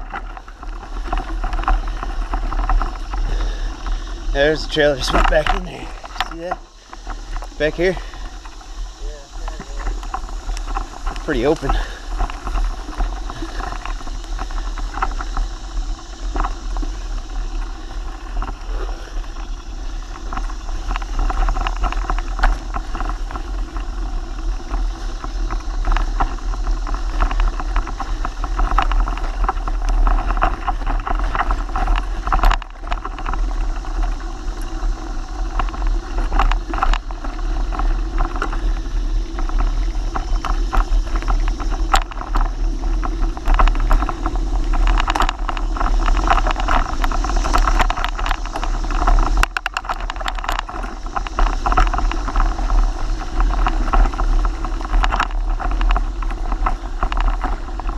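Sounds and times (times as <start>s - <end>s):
bike rattles and knocks: 0.0s - 57.9s
low wind rumble on microphone: 0.0s - 57.9s.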